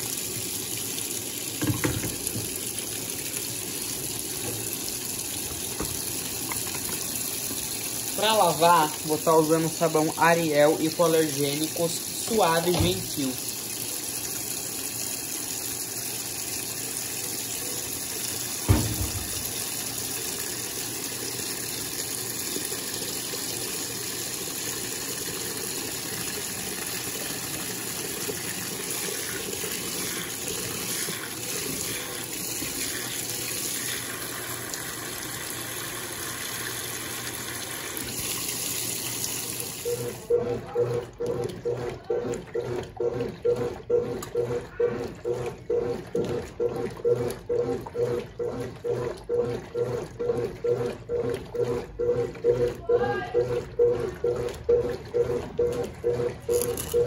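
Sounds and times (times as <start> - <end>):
agitator churning water: 0.0 - 57.0
water pouring into washing machine: 0.0 - 57.0
motor hum: 39.6 - 57.0.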